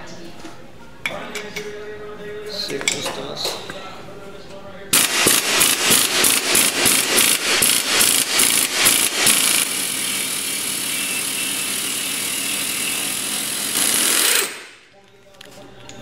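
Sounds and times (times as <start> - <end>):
pneumatic impact wrench hammering: 5.0 - 14.8.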